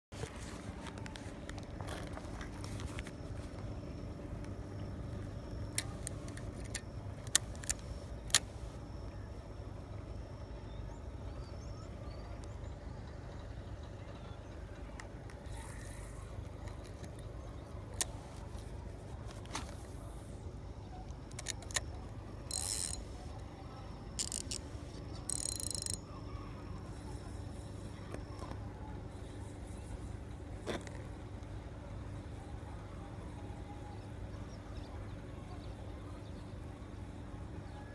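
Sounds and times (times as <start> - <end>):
fishing reel clicks: 5.8 - 8.5, 21.3 - 21.9, 22.5 - 23.1, 24.2 - 26.0
fishing line rustling: 22.5 - 23.4, 24.2 - 26.0.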